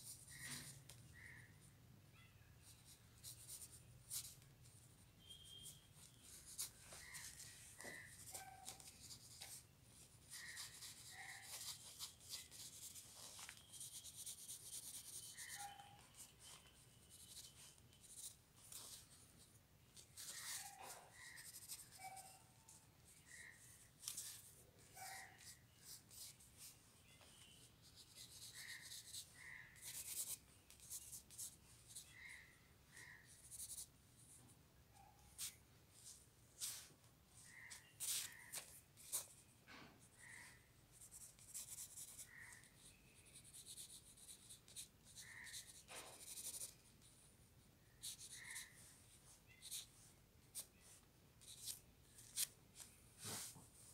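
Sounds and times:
pencil scratching on paper: 2.6s - 4.4s, 5.2s - 19.2s, 20.0s - 26.7s, 27.4s - 32.4s, 33.0s - 34.3s, 35.3s - 39.4s, 40.0s - 47.2s, 48.0s - 49.9s.

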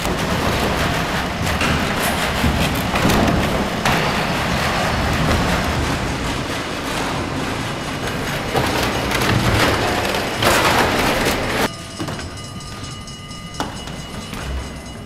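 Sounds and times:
loud steady rushing noise: 0.0s - 11.7s.

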